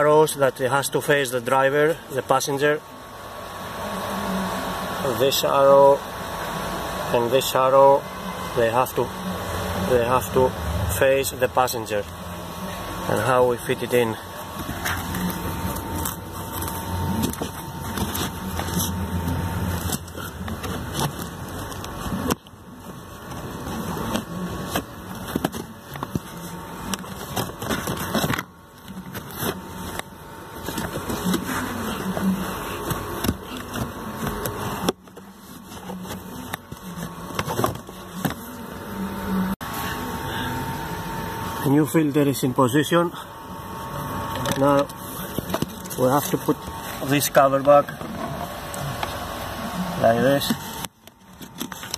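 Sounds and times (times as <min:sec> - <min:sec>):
filter scraping against plastic: 0:12.6 - 0:38.6.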